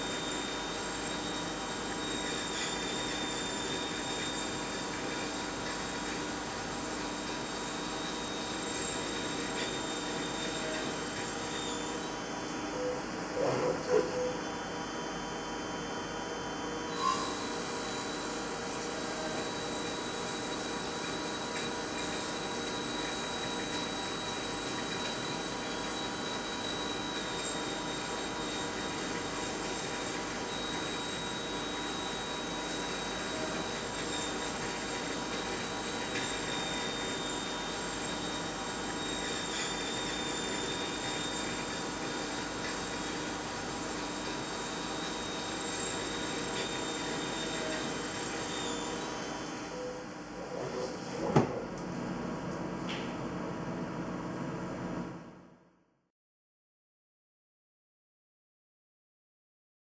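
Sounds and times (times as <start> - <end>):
machine drilling steel hum: 0.0 - 51.0
thin high whine: 0.0 - 51.6.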